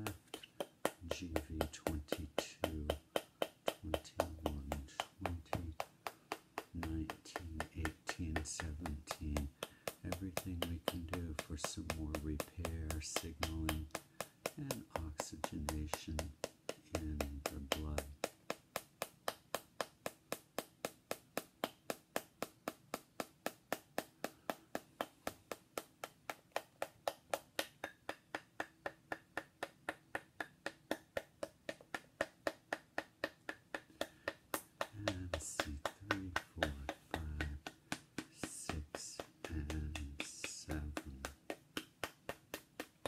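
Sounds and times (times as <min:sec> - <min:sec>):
metal rod tapping: 0:00.0 - 0:19.4, 0:31.4 - 0:43.0.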